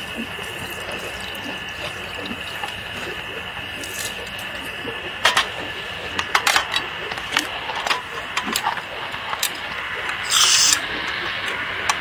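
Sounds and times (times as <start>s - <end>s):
brief gas hiss: 10.2s - 10.8s.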